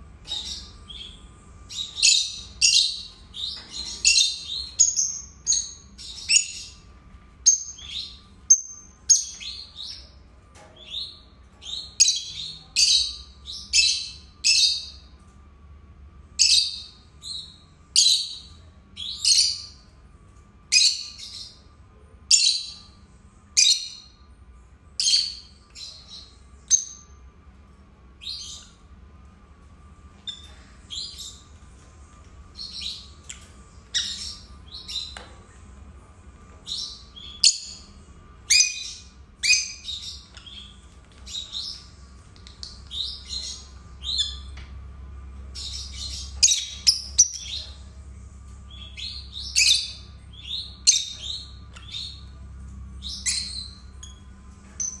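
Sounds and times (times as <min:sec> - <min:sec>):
lovebirds chirping: 0:00.2 - 0:15.1, 0:45.4 - 0:55.0.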